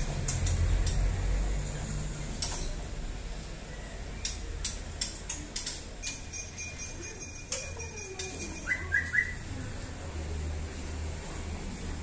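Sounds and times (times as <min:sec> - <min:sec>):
birds making sharp ticks: 0:00.2 - 0:01.2, 0:04.2 - 0:09.2.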